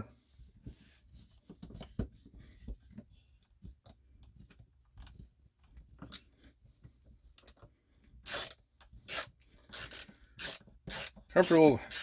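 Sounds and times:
ratcheting screwdriver clicking: 8.3s - 12.0s.

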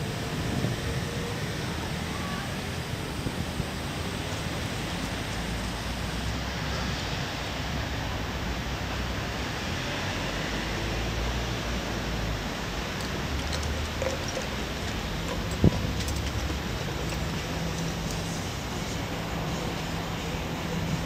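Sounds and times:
wind rushing over microphone: 0.0s - 6.3s, 14.3s - 18.8s.

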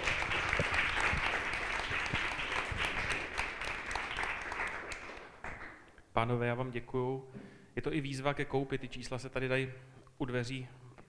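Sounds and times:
audience clapping: 0.0s - 5.9s.

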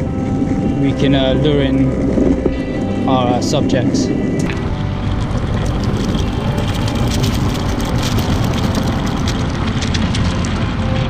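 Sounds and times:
skateboard wheels rumbling on asphalt: 0.0s - 11.0s
small scattered clicks: 4.4s - 11.0s.

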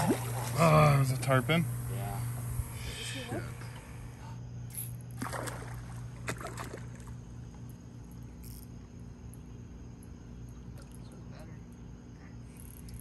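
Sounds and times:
fish splashing: 0.0s - 0.9s, 5.1s - 7.3s
steady low hum: 0.0s - 13.0s.

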